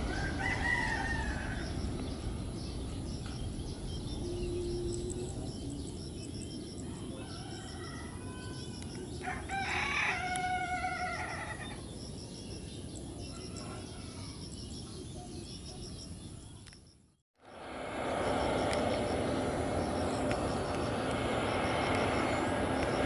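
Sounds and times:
rooster crowing: 0:00.0 - 0:01.9, 0:06.8 - 0:11.8
distant jet rumble: 0:00.0 - 0:16.4, 0:17.4 - 0:23.0
small birds chirping: 0:00.0 - 0:17.2.

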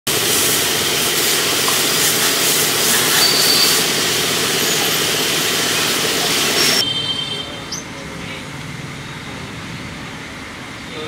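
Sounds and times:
pressure washer spray hissing: 0:00.1 - 0:06.8.

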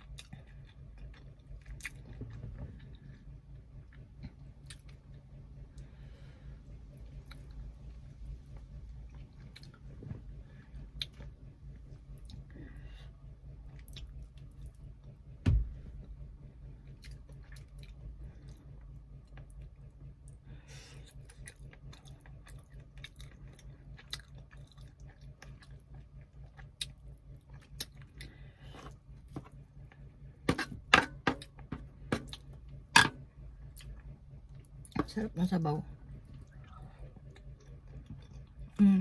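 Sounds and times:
chewing soft food: 0:00.0 - 0:15.3, 0:16.0 - 0:30.4, 0:31.4 - 0:35.0, 0:35.9 - 0:39.0
low steady hum: 0:00.0 - 0:39.0
thump: 0:15.4 - 0:15.7.

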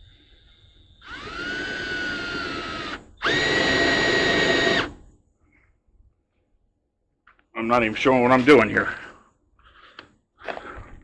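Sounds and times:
electric drill boring wood: 0:01.0 - 0:05.0.

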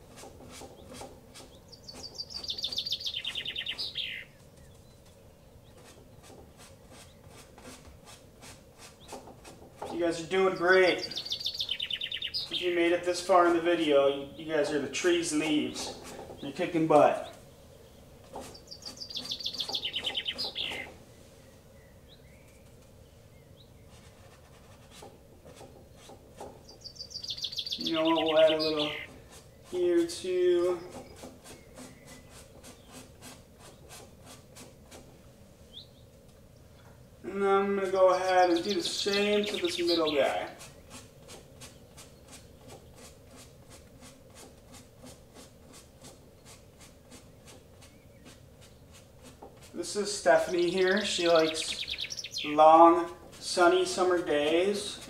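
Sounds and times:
songbird high trill: 0:01.5 - 0:05.0, 0:10.3 - 0:12.9, 0:17.2 - 0:21.0, 0:26.6 - 0:29.9, 0:38.0 - 0:41.0, 0:50.2 - 0:52.8
paintbrush strokes on canvas: 0:04.4 - 0:11.2, 0:23.8 - 0:26.6, 0:27.8 - 0:35.3, 0:38.0 - 0:55.0.

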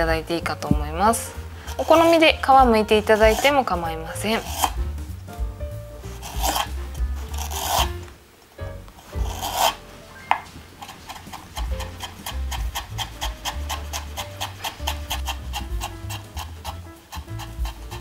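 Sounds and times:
knife scraping on cutting board: 0:03.0 - 0:03.6, 0:04.3 - 0:04.9, 0:06.0 - 0:08.1, 0:09.0 - 0:18.0
knife chopping on wooden board: 0:04.4 - 0:05.0, 0:06.3 - 0:08.0, 0:09.2 - 0:18.0.

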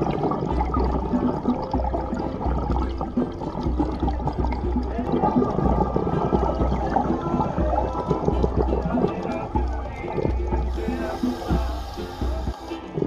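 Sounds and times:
underwater regulator bubbles: 0:00.0 - 0:13.0.

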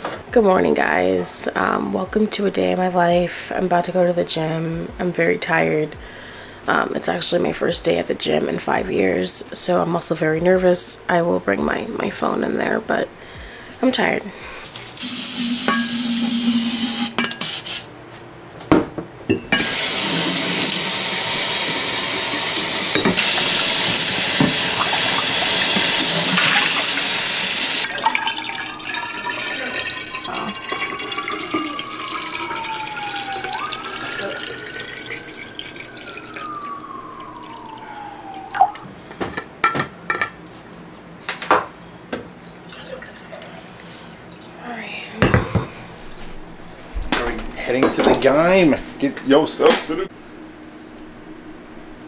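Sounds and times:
kitchen tap running: 0:15.0 - 0:17.8, 0:19.6 - 0:38.6
water pouring into bottle: 0:23.2 - 0:38.8.

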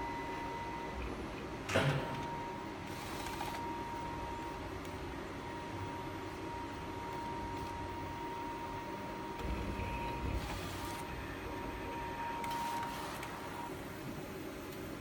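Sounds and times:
printer carriage running: 0:09.2 - 0:14.3.

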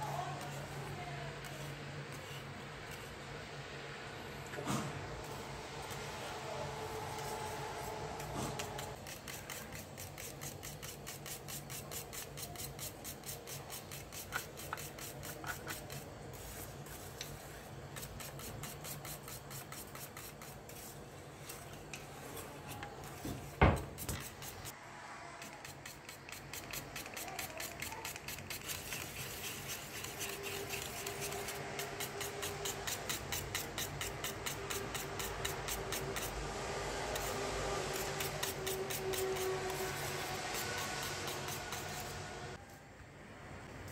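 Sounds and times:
wire whisk scraping a metal pot: 0:26.6 - 0:36.4.

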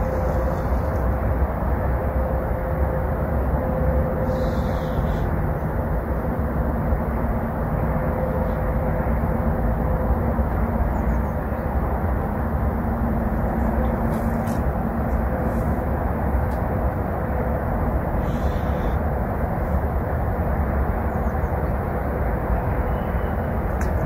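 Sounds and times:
faint constant hum: 0:00.0 - 0:24.0
low outdoor rumble: 0:00.0 - 0:24.0.

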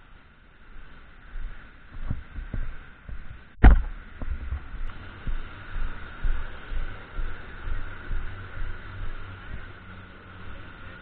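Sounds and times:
faint steady hiss: 0:00.0 - 0:11.0
footstep thumps on microphone: 0:01.9 - 0:08.8
sharp knock: 0:03.6 - 0:04.4.

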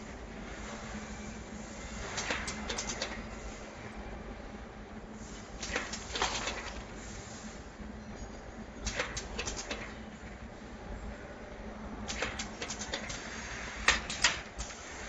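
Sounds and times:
machine clicking and clacking: 0:02.1 - 0:03.2, 0:05.6 - 0:06.9, 0:08.8 - 0:10.0, 0:12.0 - 0:14.8.

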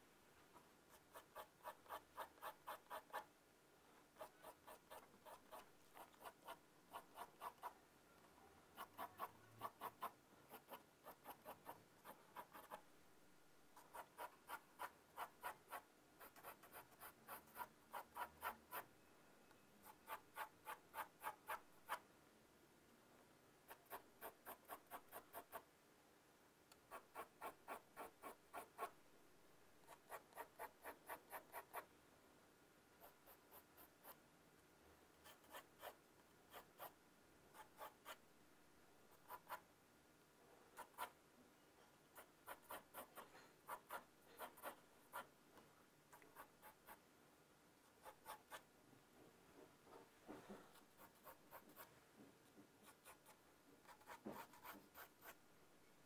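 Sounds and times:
pencil scratching on paper: 0:00.9 - 0:03.3, 0:04.1 - 0:07.8, 0:08.7 - 0:12.9, 0:13.8 - 0:18.9, 0:19.8 - 0:22.0, 0:23.7 - 0:25.7, 0:26.9 - 0:29.0, 0:29.8 - 0:31.9, 0:33.0 - 0:34.2, 0:35.2 - 0:38.2, 0:39.1 - 0:39.7, 0:40.7 - 0:41.2, 0:41.9 - 0:45.3, 0:46.1 - 0:47.0, 0:47.9 - 0:48.7, 0:50.5 - 0:52.0, 0:52.8 - 0:55.4.

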